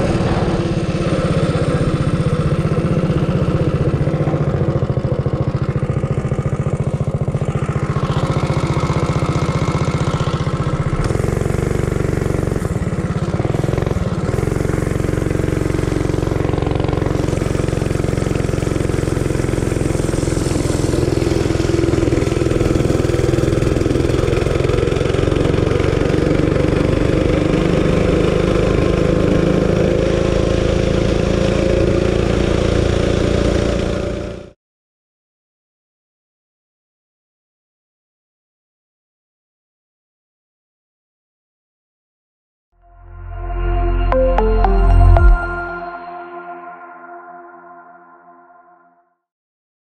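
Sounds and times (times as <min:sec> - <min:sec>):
mini bike engine running: 0:00.0 - 0:34.6.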